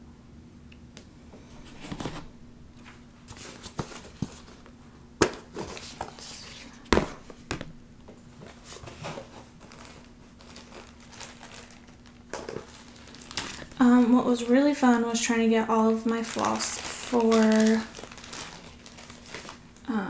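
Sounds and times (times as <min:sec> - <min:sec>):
plastic crinkling and rustling: 0:08.4 - 0:19.9.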